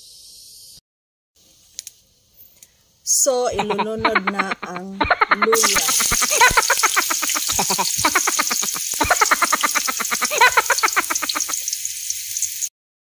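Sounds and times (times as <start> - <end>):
animal calling in pulsed bursts: 3.6 - 11.8
ginger sizzling in oil: 5.6 - 12.7.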